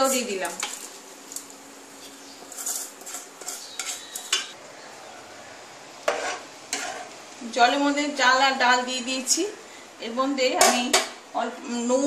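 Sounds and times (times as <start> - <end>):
metal bowl scraping a pot: 2.4 - 4.6, 6.1 - 7.2.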